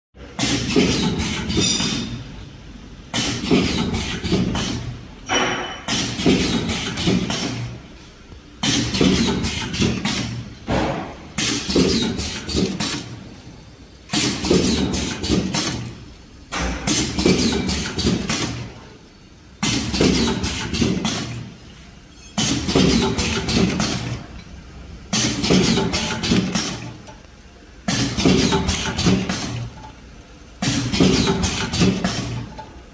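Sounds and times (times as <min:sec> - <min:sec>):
pneumatic air hiss: 0:03.1 - 0:04.9, 0:30.6 - 0:32.4.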